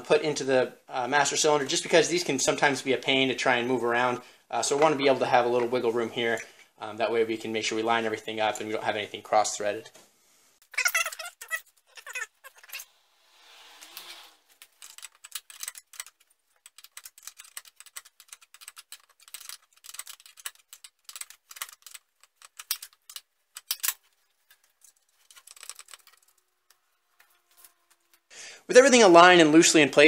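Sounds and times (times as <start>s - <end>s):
small metallic clicks and rattles: 14.6s - 28.3s.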